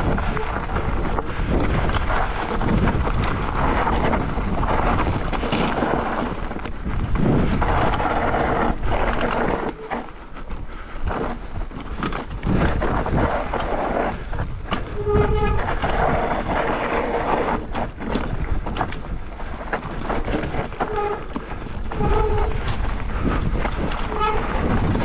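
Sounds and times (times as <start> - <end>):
bike rattling over rocks: 0.0 - 25.0
bike tyre rumble: 0.0 - 25.0
wind: 0.0 - 25.0
brake squeals: 14.8 - 18.4, 19.9 - 24.7.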